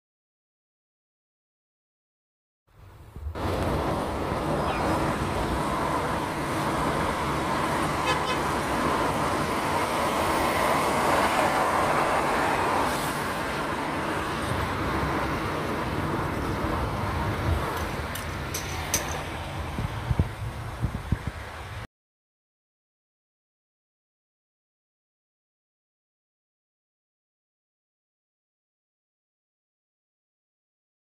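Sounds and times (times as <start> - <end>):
car road and engine noise: 2.7 - 21.9.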